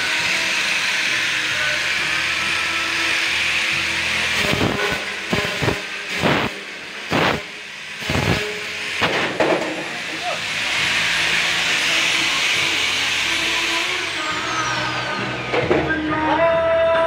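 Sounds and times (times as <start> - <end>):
angle grinder grinding metal: 0.0 - 16.5.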